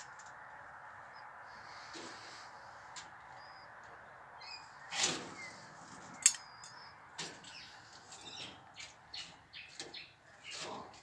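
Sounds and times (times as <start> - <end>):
bird chirps: 3.2 - 10.9
rustling scrape: 4.9 - 6.2.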